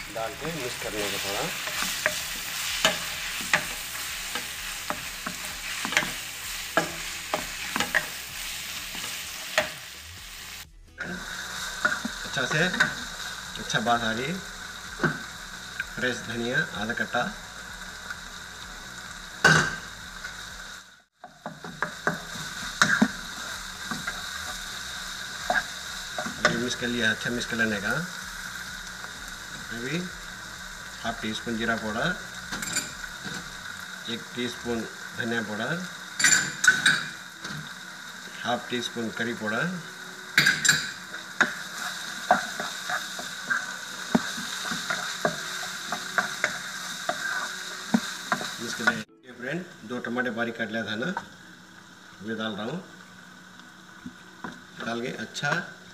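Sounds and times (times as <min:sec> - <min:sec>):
food sizzling in oil: 0:00.0 - 0:55.9
spoon scraping and knocking pan: 0:00.4 - 0:09.8, 0:11.8 - 0:13.2, 0:21.2 - 0:24.7, 0:25.4 - 0:26.8, 0:36.2 - 0:37.6, 0:40.4 - 0:49.0
metal clanking on pot: 0:32.5 - 0:33.0, 0:36.2 - 0:37.2, 0:40.4 - 0:41.5.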